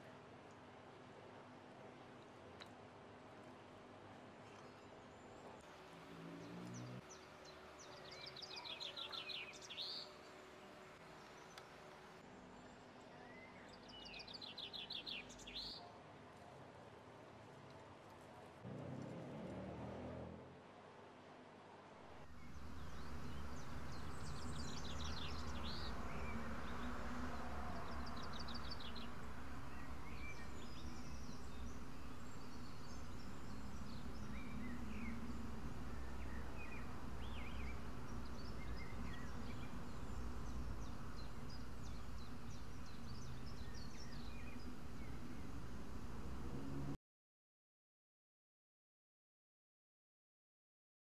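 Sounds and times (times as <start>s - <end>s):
low rumble and hiss: 20.7s - 47.0s
birds chirping and trilling: 22.3s - 46.9s.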